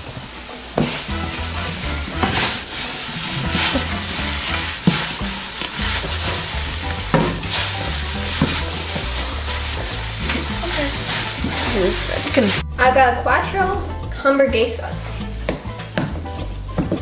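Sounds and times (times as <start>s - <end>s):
plastic gloves rustling: 0.0s - 12.7s, 14.6s - 17.0s
wet squelching of kneaded meat: 1.6s - 12.6s.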